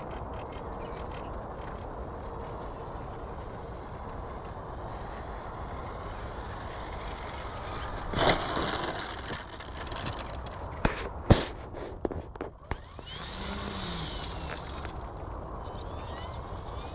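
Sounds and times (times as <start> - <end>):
plane touching down on grass: 7.7 - 15.2.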